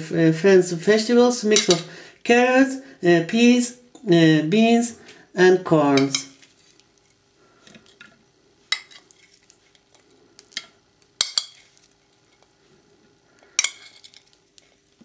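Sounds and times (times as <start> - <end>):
metal spoon clinking on ceramic: 1.6 - 1.8.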